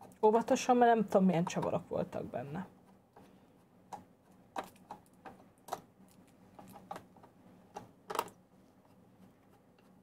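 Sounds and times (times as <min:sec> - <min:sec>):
plastic parts clicking: 0:03.9 - 0:08.4.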